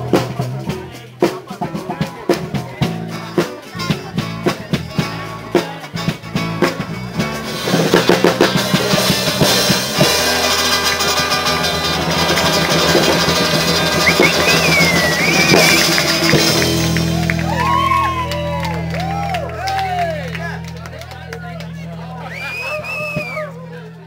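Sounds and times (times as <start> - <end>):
drum strokes: 0.0 - 17.9
acoustic guitar: 0.0 - 18.1.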